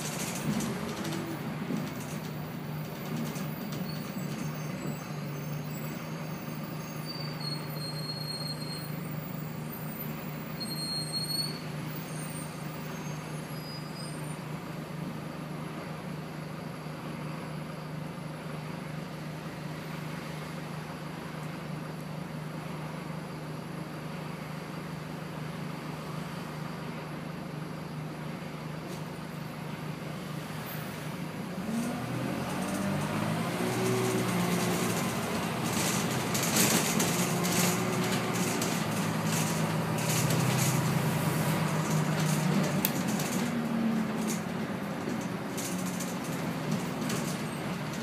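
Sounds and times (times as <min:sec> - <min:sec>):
bus diesel engine: 0:00.0 - 0:48.0
knocks and rattles: 0:32.5 - 0:41.0.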